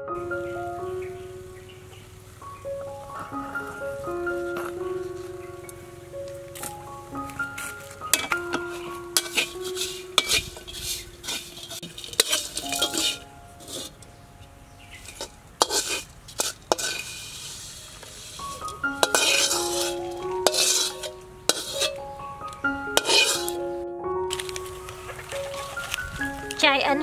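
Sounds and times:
light sizzle: 0.2 - 23.7, 24.3 - 27.0
metal spatula scraping a wok: 7.6 - 14.1, 14.9 - 22.0, 23.0 - 23.6.

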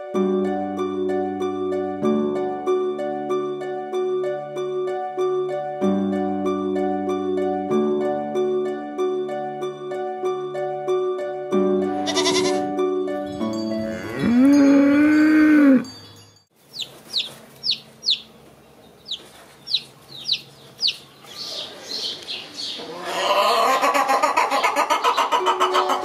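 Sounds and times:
goat bleating: 12.0 - 12.6
chickens calling loudly: 16.7 - 26.0
chicks peeping: 16.7 - 26.0.

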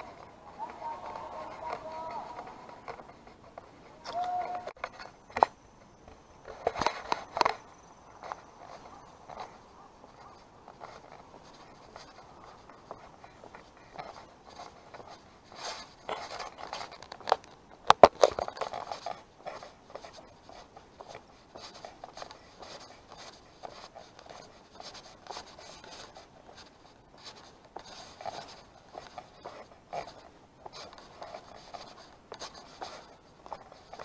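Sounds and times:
camera handling scratches: 8.2 - 34.0.

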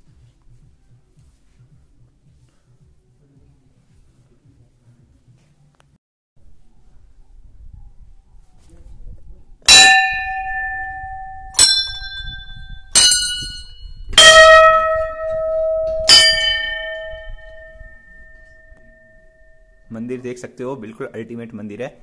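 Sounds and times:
temple bells ringing: 9.7 - 19.9.

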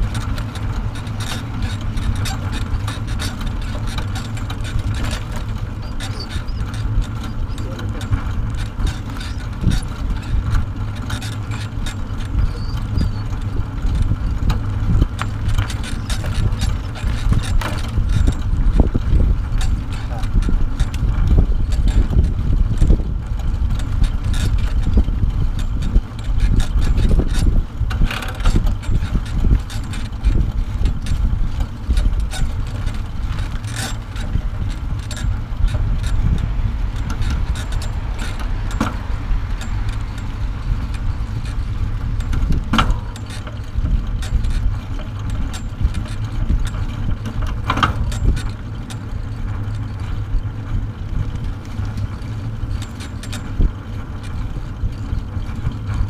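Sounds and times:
trailer rolling on asphalt: 0.0 - 56.0
wind rushing over microphone: 0.0 - 56.0.

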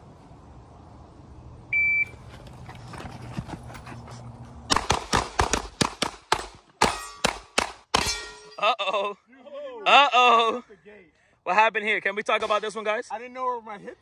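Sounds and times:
handgun firing rapid shots: 4.7 - 8.2.

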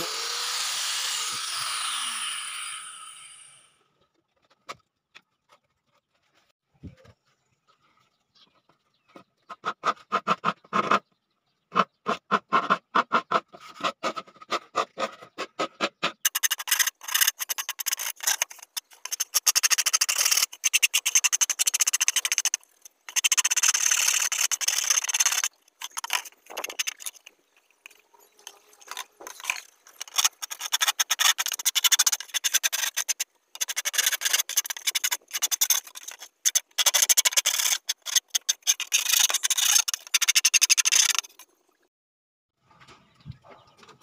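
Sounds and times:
wooden stick rasping on plastic: 11.7 - 27.3, 28.4 - 41.4.

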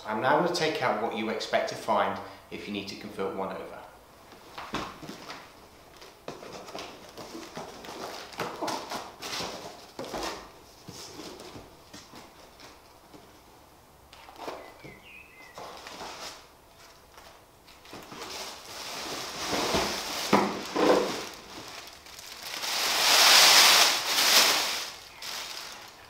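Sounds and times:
plastic bag rustling: 4.8 - 13.4, 14.2 - 26.0
cardboard box rustling: 6.0 - 13.4, 14.2 - 26.0.

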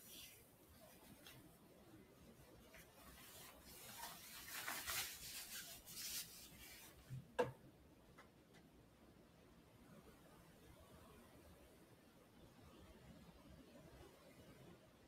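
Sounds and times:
faint scratchy rubbing: 0.0 - 1.6, 2.3 - 7.2.

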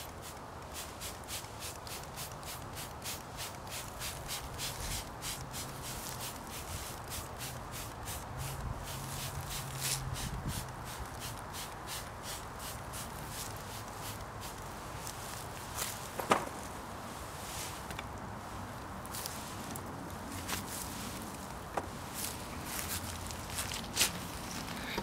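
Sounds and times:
paintbrush scrubbing: 0.2 - 15.9.

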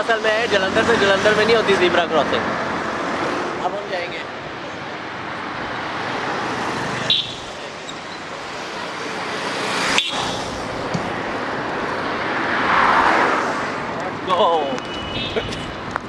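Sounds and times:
passing cars: 0.0 - 16.0
vehicle passing close: 8.3 - 14.0.

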